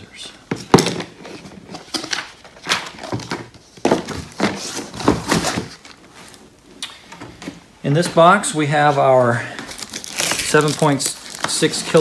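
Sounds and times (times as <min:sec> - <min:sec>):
cardboard boxes scraping and rustling: 0:03.2 - 0:06.4.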